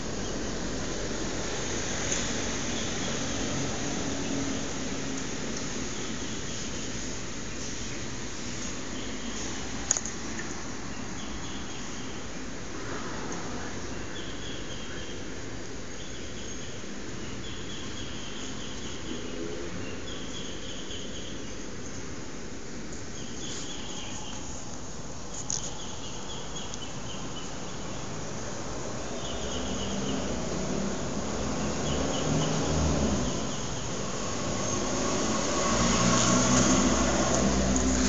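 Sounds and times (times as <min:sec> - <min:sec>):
click: 0:09.9 - 0:10.5.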